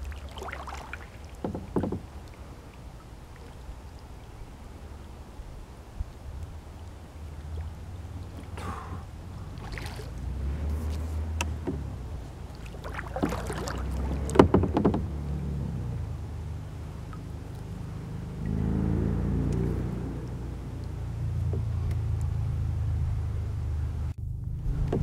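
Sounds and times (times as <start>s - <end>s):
paddle splashing: 0.0s - 23.8s
low rumble: 1.2s - 25.0s
sharp knocks and clicks: 1.4s - 2.0s, 11.4s - 12.0s, 14.1s - 15.1s.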